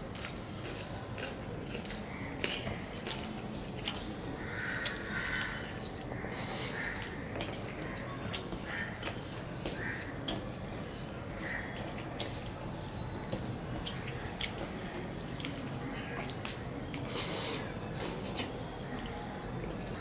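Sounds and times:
wet smacking and chewing: 0.1s - 9.2s
hand mixing food on steel plate: 4.8s - 18.5s.

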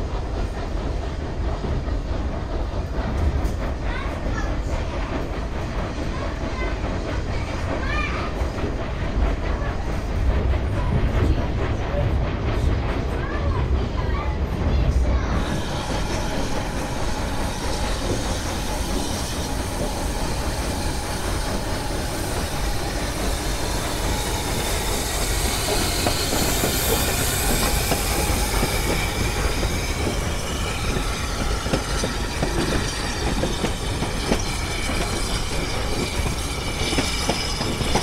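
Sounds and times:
steam locomotive passing: 0.0s - 38.0s
faint high wheel squeal: 15.4s - 38.0s.

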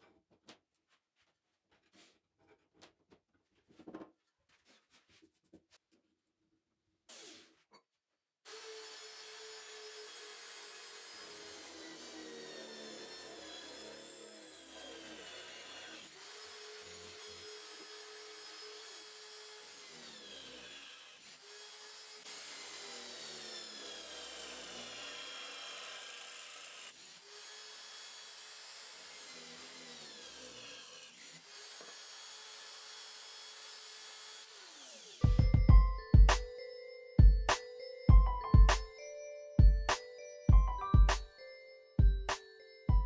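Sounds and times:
electric drill boring through steel: 8.5s - 35.3s.

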